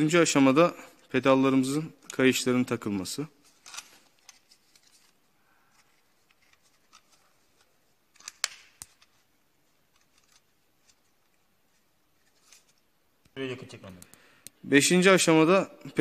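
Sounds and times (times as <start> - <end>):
strap rustling and clicking: 3.4 - 12.9.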